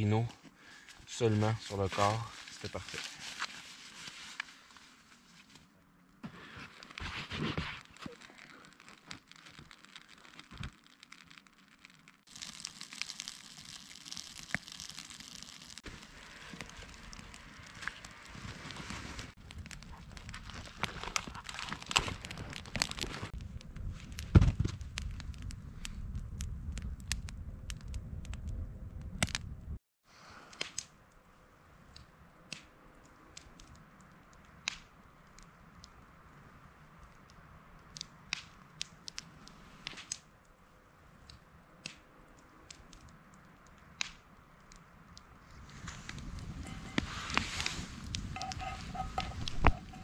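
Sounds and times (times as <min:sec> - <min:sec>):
campfire crackling and popping: 0:05.6 - 0:29.8, 0:30.4 - 0:50.0
low rumble: 0:23.3 - 0:29.8.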